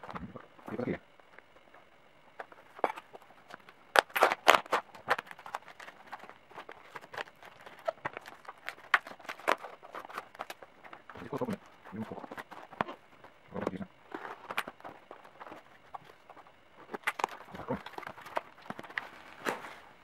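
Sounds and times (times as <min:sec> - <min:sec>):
packing tape ripping: 0:02.8 - 0:13.0.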